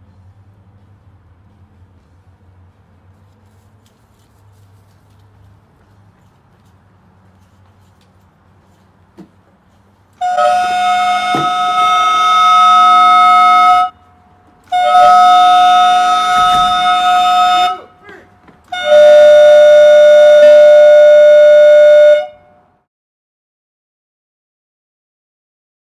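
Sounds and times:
alarm air horn blasts: 0:10.2 - 0:22.7.

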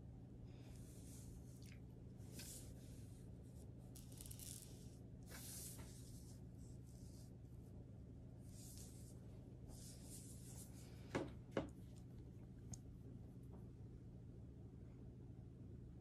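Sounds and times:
low steady hum: 0:00.0 - 0:16.0
brush swishing on paper: 0:02.2 - 0:03.9, 0:04.8 - 0:07.8, 0:08.4 - 0:11.1.

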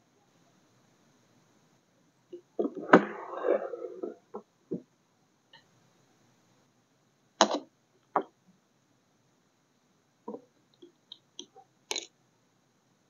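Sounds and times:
small clicks and taps: 0:10.3 - 0:12.1.

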